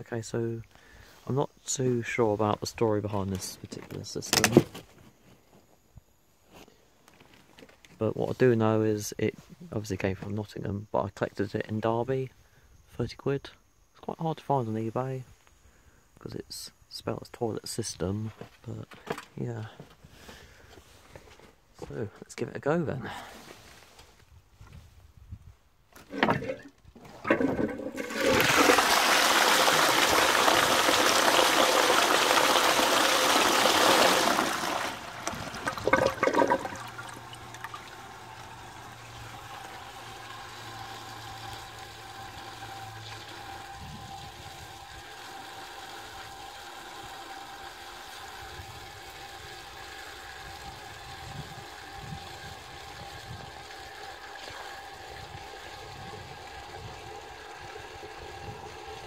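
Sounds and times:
toilet cistern flushing: 26.1 - 59.0
cistern refilling hiss: 27.2 - 59.0.

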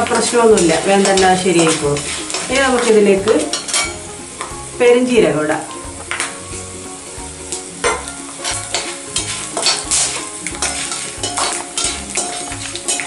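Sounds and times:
spatula scraping a pan: 0.0 - 4.6, 7.5 - 13.0
spices sizzling in oil: 0.0 - 13.0.

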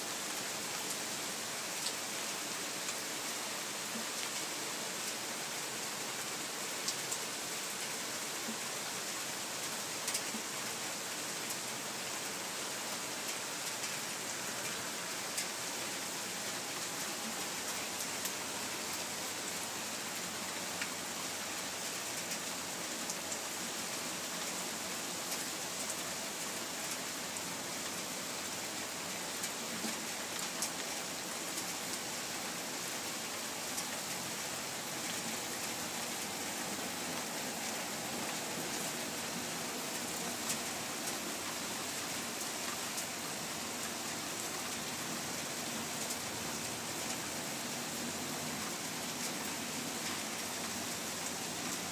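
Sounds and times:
steady rain hiss: 0.0 - 51.9
raindrops ticking close by: 1.7 - 51.9.

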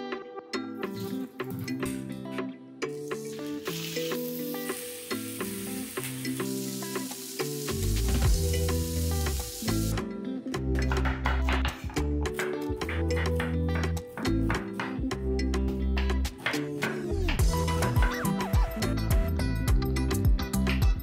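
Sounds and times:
music track: 0.0 - 21.0
meat sizzling in hot oil: 3.1 - 10.0.

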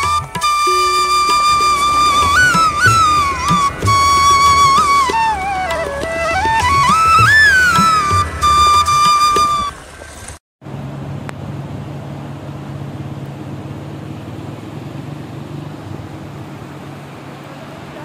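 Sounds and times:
stream rushing over rocks: 0.0 - 10.4.

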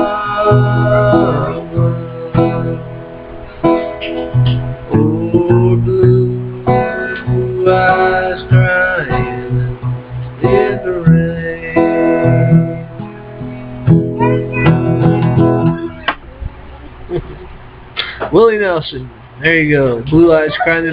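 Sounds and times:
acoustic guitar strumming: 0.0 - 16.3.

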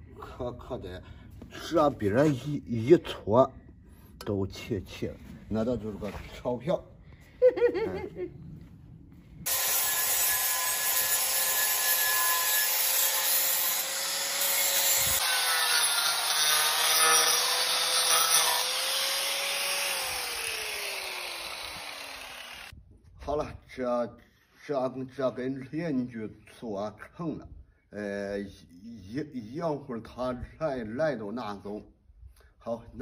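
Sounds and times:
angle grinder grinding metal: 9.5 - 22.7.

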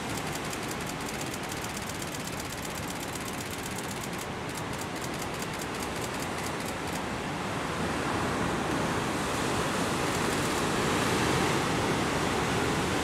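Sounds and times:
fast high ticking: 0.0 - 7.0
heavy surf: 0.0 - 13.0
wind: 0.0 - 13.0.

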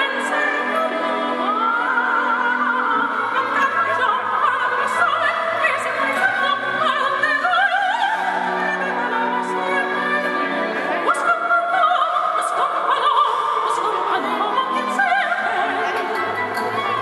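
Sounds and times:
woman singing opera: 0.0 - 17.0
instrumental accompaniment: 13.6 - 17.0.

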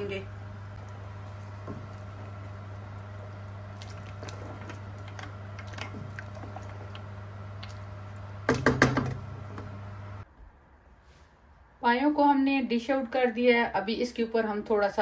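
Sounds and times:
liquid sloshing: 0.8 - 8.7.

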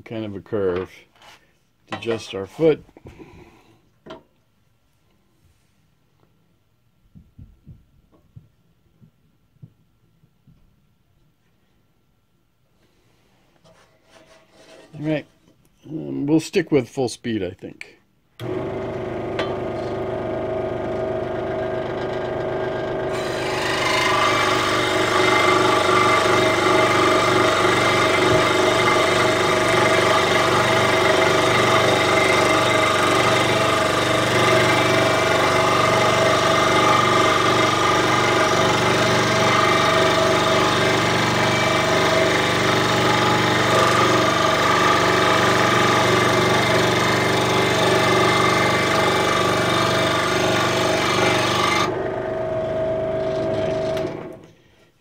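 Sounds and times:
scroll saw cutting wood: 18.4 - 54.4.

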